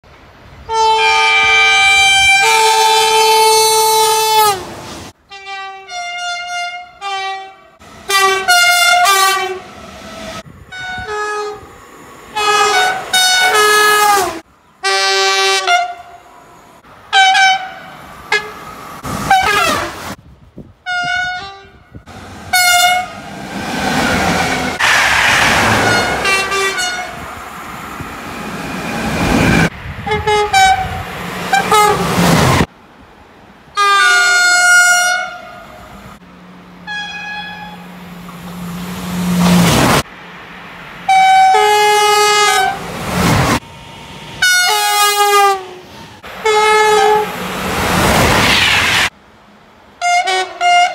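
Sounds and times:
train passing with rushing noise: 0.1s - 5.3s, 7.8s - 50.1s
train horn blasts: 0.6s - 4.7s, 5.3s - 11.7s, 12.4s - 16.2s, 17.1s - 18.6s, 19.3s - 20.0s, 20.8s - 23.3s, 25.8s - 27.2s, 29.2s - 32.1s, 33.8s - 35.9s, 36.8s - 37.9s, 41.1s - 42.8s, 44.4s - 45.8s, 46.4s - 47.4s, 50.0s - 50.9s.

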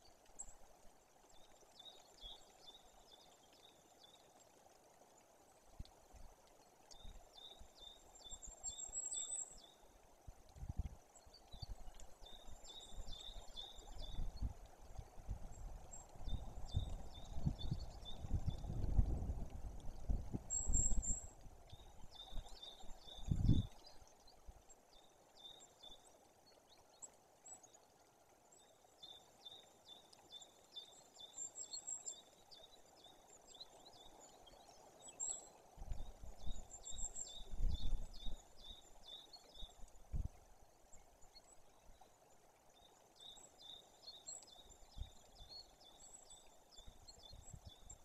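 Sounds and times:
songbirds chirping: 0.0s - 48.0s
wind buffeting microphone: 10.6s - 11.0s, 15.2s - 21.2s, 23.2s - 23.7s, 37.4s - 38.3s.

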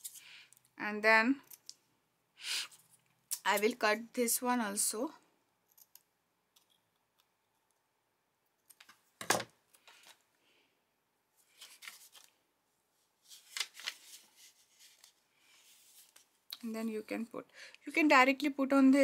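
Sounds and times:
paper rustling: 11.4s - 12.4s, 13.2s - 16.4s.

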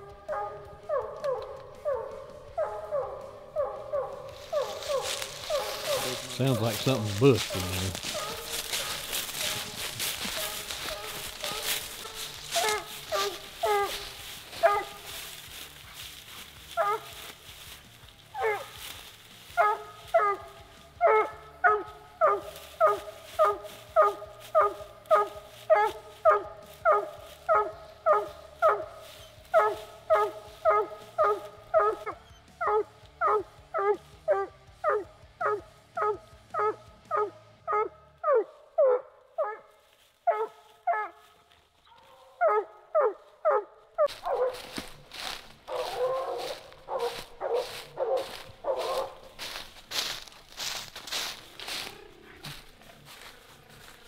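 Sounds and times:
hound barking: 0.0s - 54.0s.

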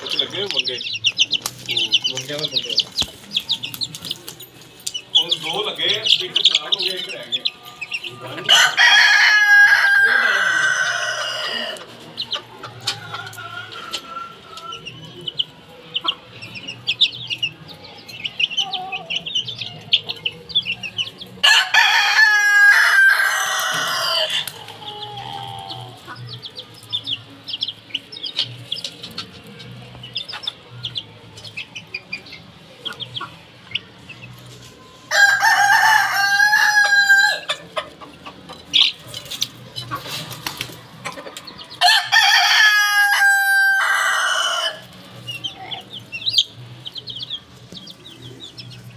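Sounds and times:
chickens clucking and cheeping: 0.0s - 48.9s
roosters crowing: 5.3s - 15.3s, 21.2s - 26.7s, 35.0s - 38.0s, 41.6s - 47.1s.

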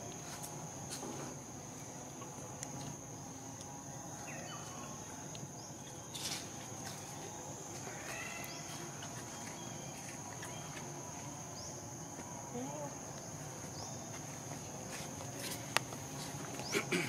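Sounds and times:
high-pitched insect drone: 2.4s - 13.7s.

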